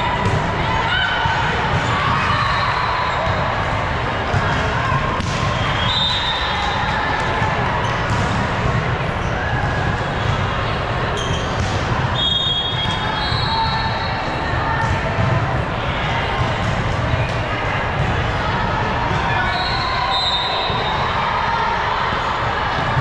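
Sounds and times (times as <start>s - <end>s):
hall rumble and voices: 0.0s - 23.0s
volleyball hits echoing: 3.0s - 6.0s, 6.6s - 10.6s
shoe squeaks: 11.2s - 11.6s.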